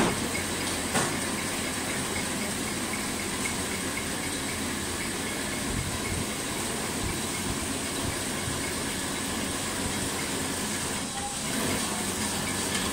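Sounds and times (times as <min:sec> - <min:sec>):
packing machine humming and hissing: 0:00.0 - 0:12.9.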